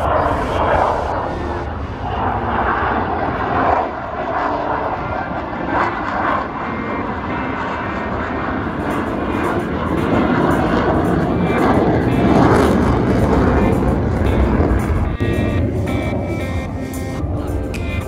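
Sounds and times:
aircraft engine rushing: 0.0 - 18.0.

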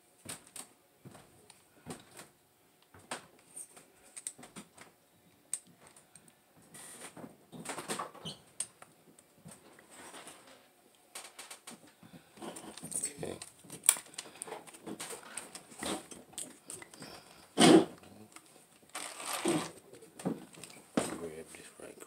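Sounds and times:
scraping rustle: 18.9 - 21.5.

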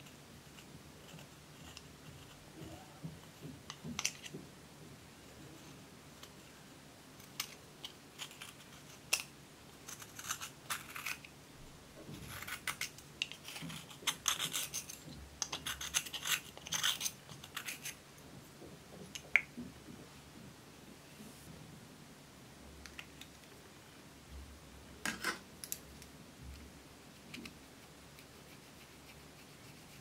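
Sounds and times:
metal tool scraping eyeshadow: 12.3 - 18.0.

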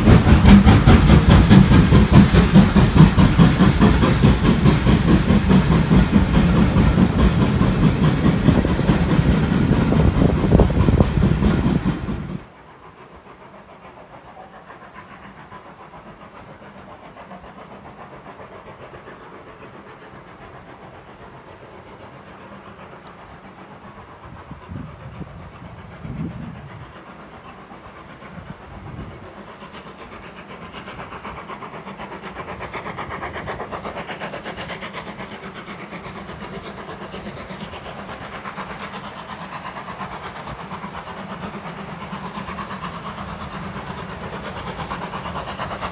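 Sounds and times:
steam hissing: 0.0 - 45.9
steam locomotive working: 0.0 - 45.9.

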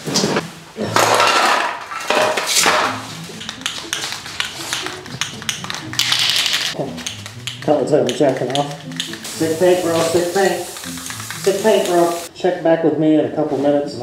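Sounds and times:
spray cans clattering together: 0.9 - 12.3
spray can ball rattling: 2.4 - 12.3
spray hiss: 9.0 - 12.3.

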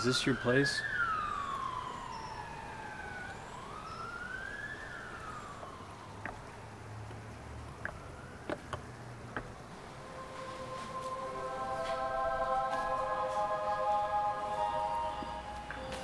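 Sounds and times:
police siren wailing: 0.0 - 8.7, 9.8 - 16.0.

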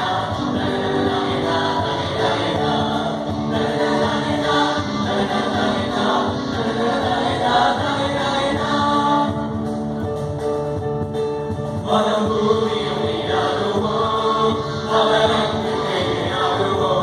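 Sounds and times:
mixed choir singing held notes: 0.0 - 9.7, 11.8 - 17.0.

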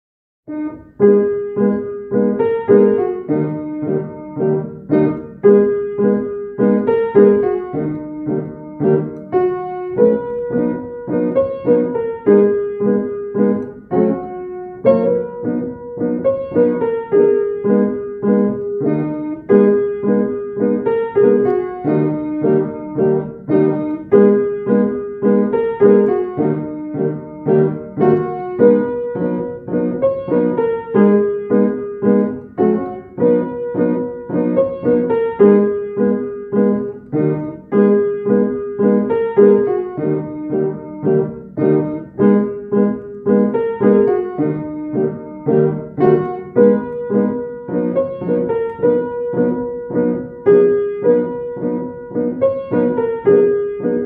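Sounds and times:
piano playing repeating pattern: 0.5 - 54.0.

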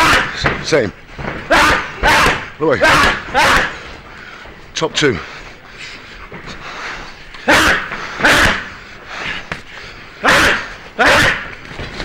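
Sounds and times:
punches on a body bag: 1.5 - 3.8.

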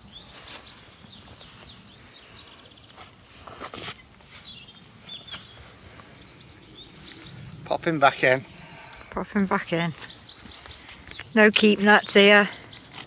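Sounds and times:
songbirds chirping and singing: 0.0 - 13.0
rustling scuffing noise: 0.2 - 1.9, 2.8 - 6.2.

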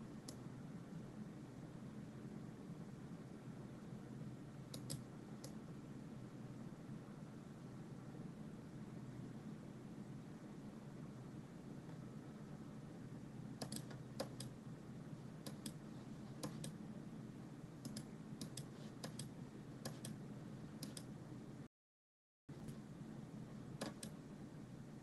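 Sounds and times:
steady low hum: 0.0 - 21.7, 22.5 - 25.0
computer mouse clicking: 4.7 - 5.6, 13.6 - 14.6, 15.4 - 16.8, 17.8 - 20.2, 20.8 - 21.1, 23.8 - 24.2.

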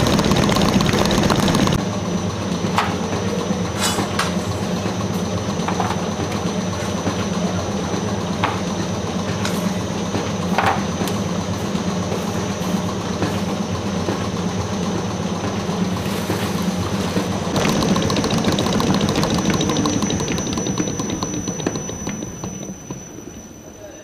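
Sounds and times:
mixer motor running: 0.0 - 1.8, 16.6 - 23.8
whisk rattling: 0.0 - 1.8, 17.5 - 23.4.

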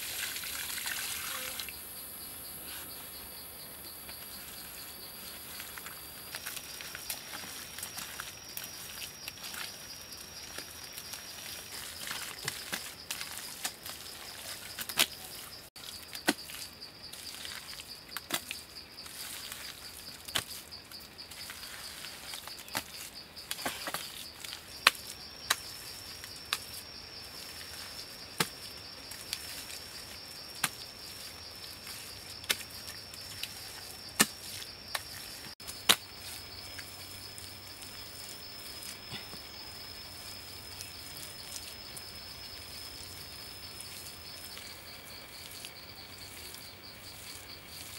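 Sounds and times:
insects droning: 0.0 - 47.9
hands slapping wet mud: 10.4 - 18.6, 22.3 - 25.7, 31.9 - 36.9.

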